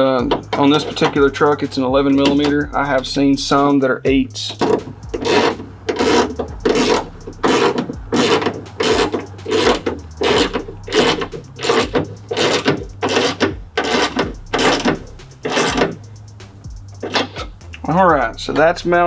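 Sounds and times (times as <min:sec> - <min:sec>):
hand ratchet pawl rasping: 0:00.0 - 0:03.7, 0:04.4 - 0:17.8.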